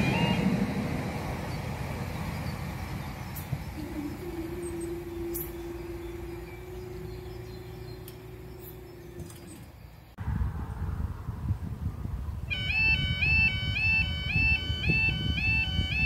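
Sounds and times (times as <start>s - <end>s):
barrier mechanism humming: 0.0s - 10.2s
low rumble: 0.0s - 12.5s.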